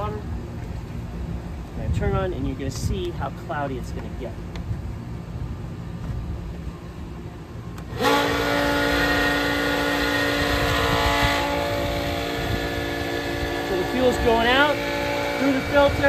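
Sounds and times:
pump motor humming: 0:04.4 - 0:16.0.

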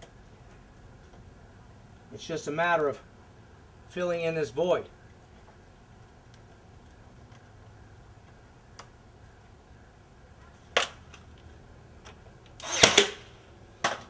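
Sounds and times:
brad nailer firing: 0:12.6 - 0:14.0.

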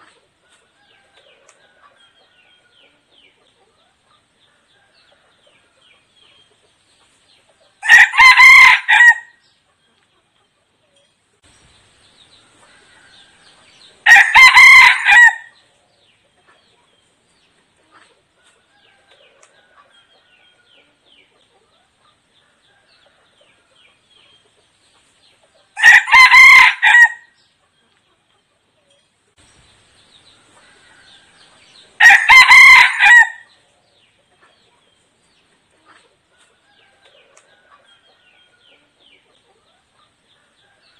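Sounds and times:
rooster crowing: 0:07.8 - 0:09.4, 0:12.7 - 0:15.5, 0:25.8 - 0:27.3, 0:30.6 - 0:33.5.

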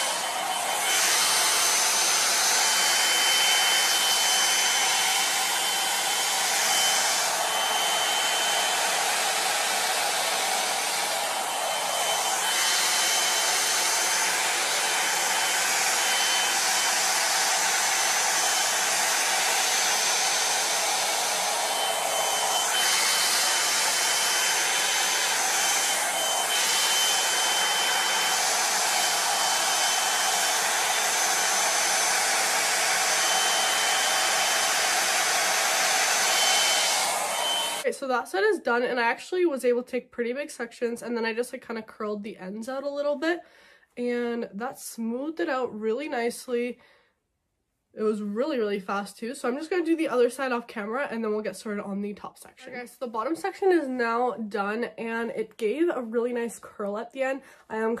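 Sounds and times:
hair dryer brush blowing air: 0:00.0 - 0:37.9.

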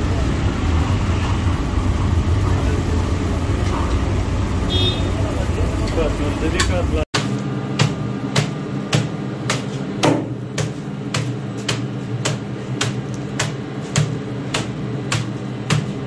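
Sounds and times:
cleaver chopping on a board: 0:07.2 - 0:16.0.

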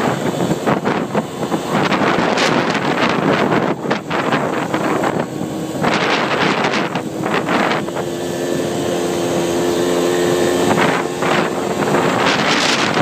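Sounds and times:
quad bike engine running: 0:00.0 - 0:13.0
wind buffeting microphone: 0:00.0 - 0:13.0.

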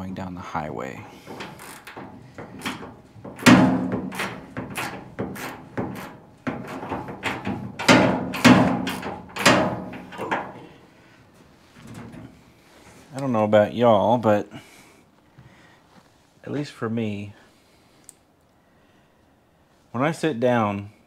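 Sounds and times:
hand tool clanking on metal: 0:01.1 - 0:10.8, 0:11.8 - 0:12.4.

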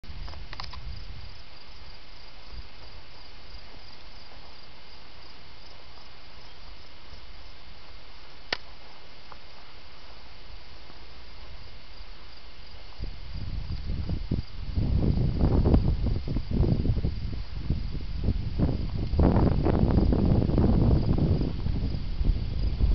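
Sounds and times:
crickets chirping: 0:00.1 - 0:22.9
sharp click: 0:00.2 - 0:00.8, 0:08.5 - 0:08.7.

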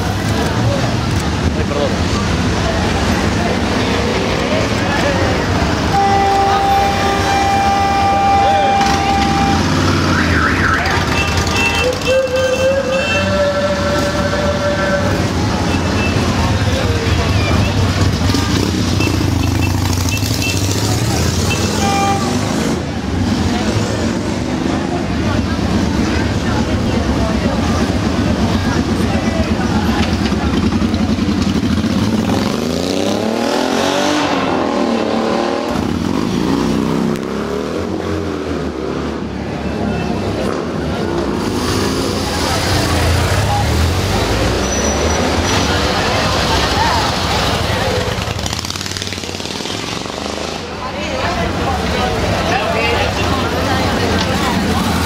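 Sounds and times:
motorcycle engines rumbling: 0:00.0 - 0:55.0
long steady horn blast: 0:05.9 - 0:09.9, 0:11.8 - 0:15.4, 0:21.8 - 0:22.5
wavering horn tone: 0:06.0 - 0:09.8.

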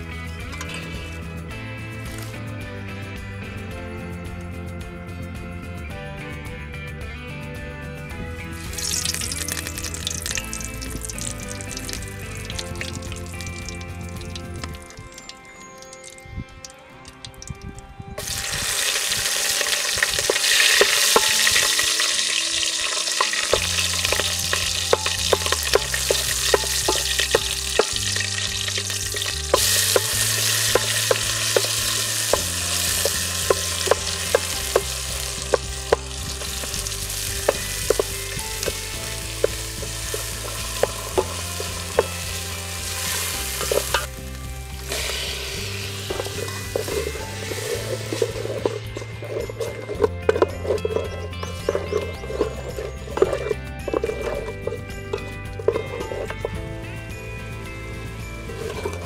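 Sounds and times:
vegetables sizzling in hot oil: 0:08.6 - 0:16.2, 0:18.2 - 0:54.5
wooden spoon knocking and scraping pot: 0:18.2 - 0:44.2, 0:44.9 - 0:56.6, 0:58.5 - 0:59.0.

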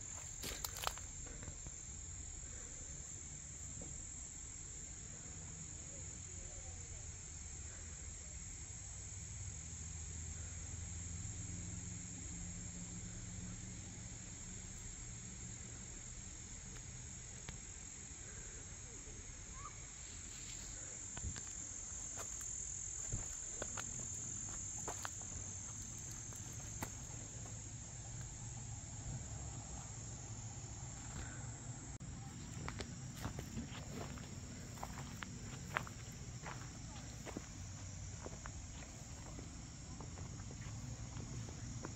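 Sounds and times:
insects trilling: 0:00.0 - 0:41.9
light footsteps: 0:22.1 - 0:27.6, 0:32.2 - 0:41.9.

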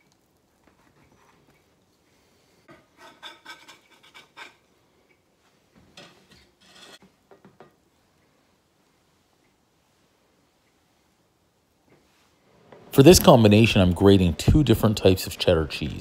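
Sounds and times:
knife scraping a wooden board: 0:03.0 - 0:04.6, 0:06.3 - 0:07.0.

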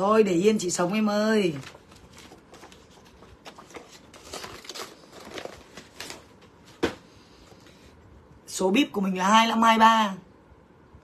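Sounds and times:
paper packaging rustling: 0:01.0 - 0:07.8.

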